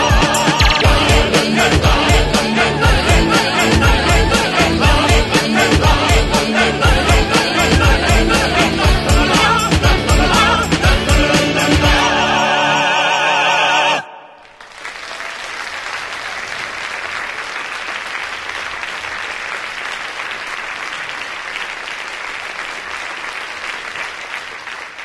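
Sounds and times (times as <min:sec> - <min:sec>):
singers with orchestra: 0:00.0 - 0:14.5
audience applause: 0:14.4 - 0:25.0.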